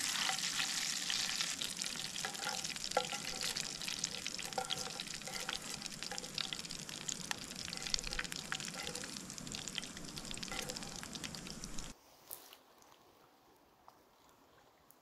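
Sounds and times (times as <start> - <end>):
oil sizzling in a pan: 0.0 - 11.9
wooden spoon scooping: 0.0 - 11.9.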